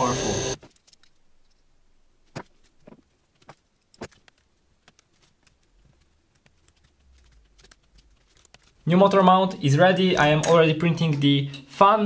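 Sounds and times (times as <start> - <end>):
laptop keyboard typing: 4.1 - 8.9.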